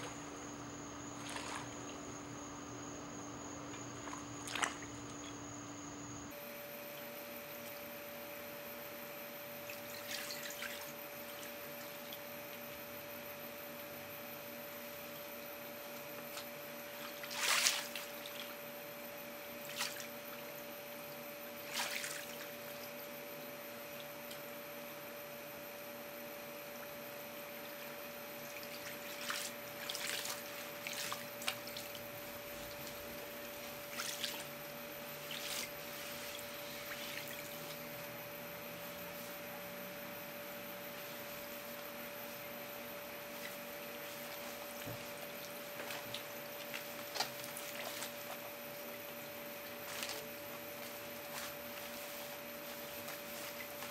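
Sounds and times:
steady hum: 0:00.0 - 0:53.9
water splashing and trickling: 0:09.6 - 0:12.2, 0:16.4 - 0:18.6, 0:21.6 - 0:22.9, 0:28.4 - 0:34.6, 0:35.2 - 0:37.9.

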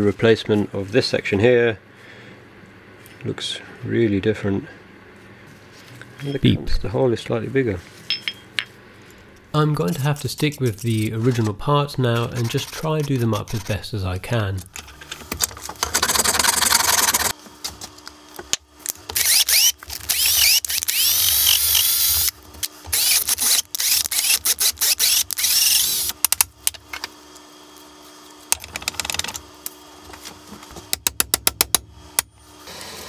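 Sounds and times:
cordless drill boring into metal: 0:19.2 - 0:22.3, 0:22.9 - 0:26.1.

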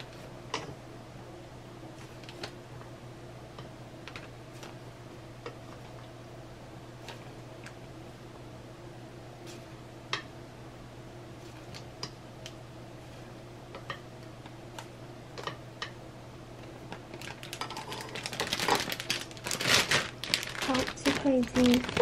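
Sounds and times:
faint steady hum: 0:00.0 - 0:22.0
plastic bag crinkling: 0:17.1 - 0:22.0.

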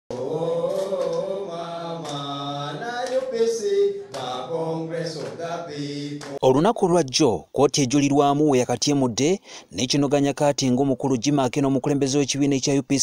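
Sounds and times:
hand clapping: 0:00.1 - 0:01.4, 0:02.0 - 0:05.6, 0:06.2 - 0:06.4
men chanting: 0:00.1 - 0:06.4.

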